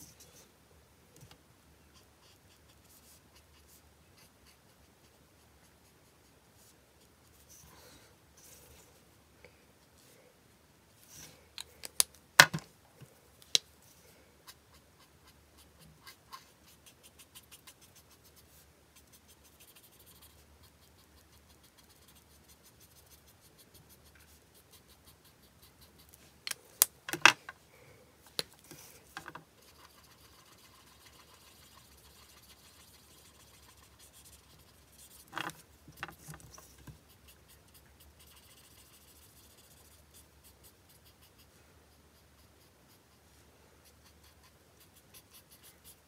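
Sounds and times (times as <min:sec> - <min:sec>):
marker scratching on card: 0:14.5 - 0:26.2, 0:28.7 - 0:43.2, 0:43.8 - 0:46.0.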